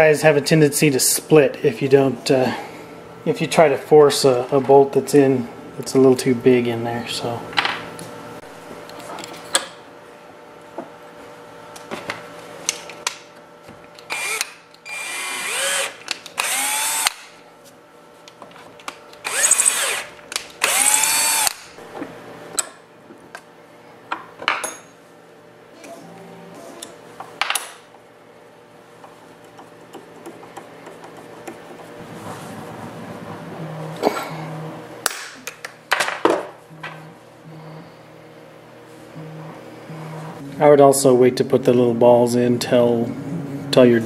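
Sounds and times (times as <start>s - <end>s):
cordless drill whining: 14.1s - 17.2s, 19.2s - 21.6s.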